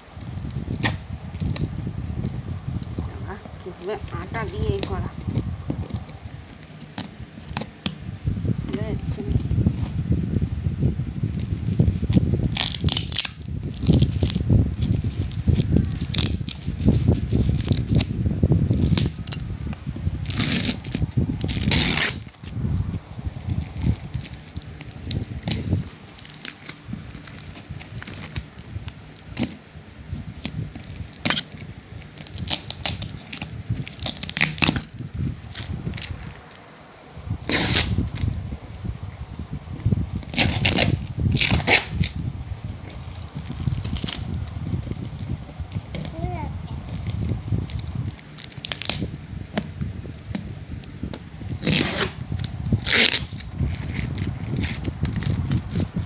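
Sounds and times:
plastic film crackling and tearing: 0.0s - 8.0s, 11.2s - 42.2s, 42.8s - 46.2s, 46.8s - 56.0s
plastic ripping: 0.2s - 8.0s, 11.3s - 42.2s, 42.8s - 46.2s, 46.8s - 56.0s
knife cutting plastic wrapping: 3.7s - 8.0s, 11.4s - 19.4s, 20.0s - 22.6s, 23.5s - 29.6s, 30.2s - 36.6s, 37.4s - 38.4s, 40.2s - 42.2s, 42.8s - 46.2s, 46.9s - 56.0s.

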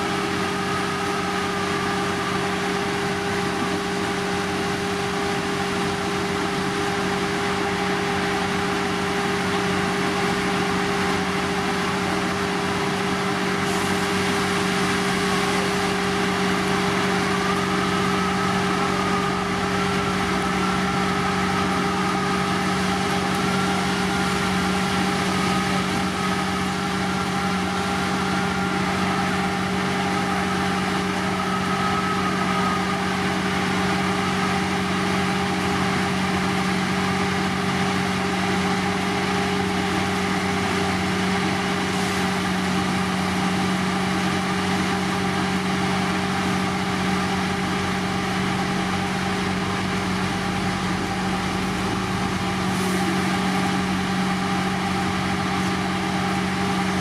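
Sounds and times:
heavy machinery engine humming: 0.0s - 57.0s.

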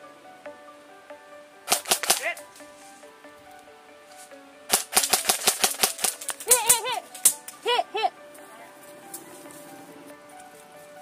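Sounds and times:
background music with held notes: 0.0s - 11.0s
airsoft gun shots: 1.7s - 2.4s, 4.7s - 6.3s.

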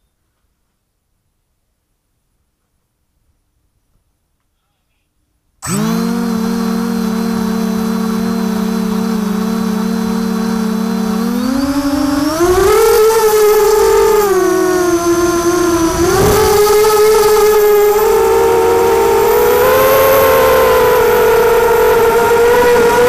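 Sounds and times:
quadcopter motors whining: 5.6s - 23.0s.

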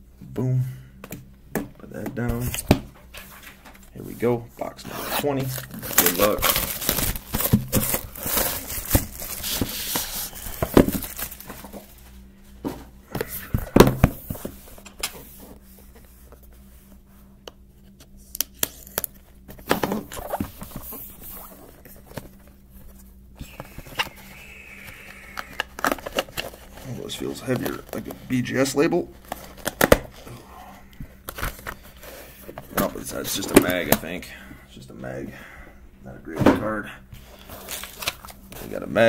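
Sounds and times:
shrink wrap crinkling and tearing: 5.0s - 12.0s, 37.4s - 38.8s.

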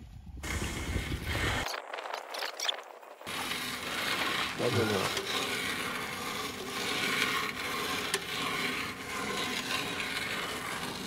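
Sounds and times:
rope scraping through conduit: 3.2s - 11.0s.

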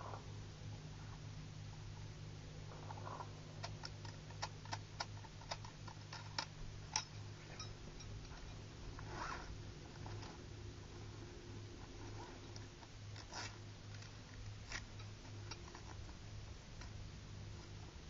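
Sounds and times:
low steady hum: 0.0s - 18.0s
backpack rustling: 8.9s - 10.4s.

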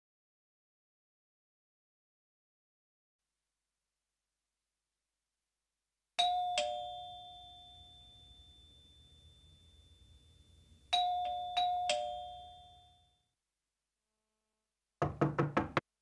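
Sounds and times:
two-tone doorbell chime: 6.2s - 13.3s.

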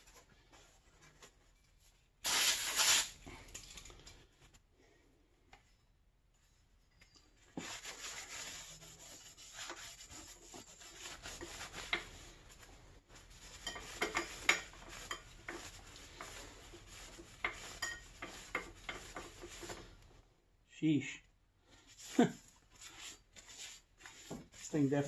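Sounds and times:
rag scrubbing metal brake disc: 13.2s - 19.8s.

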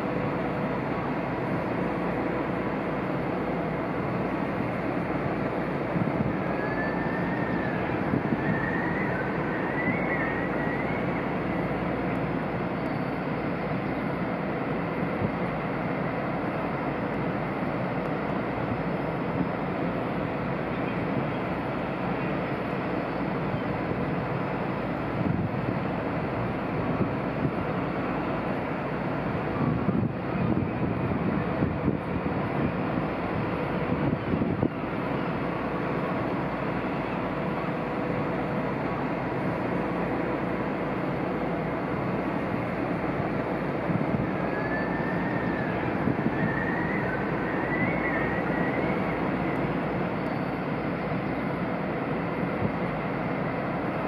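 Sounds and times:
ship machinery rumble: 0.0s - 54.0s
wind rumble: 3.8s - 12.8s, 28.4s - 36.8s, 42.0s - 54.0s.

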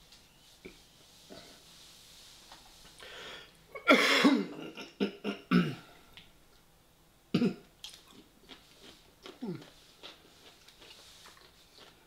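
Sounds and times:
man coughing: 3.8s - 5.9s, 7.4s - 7.6s.

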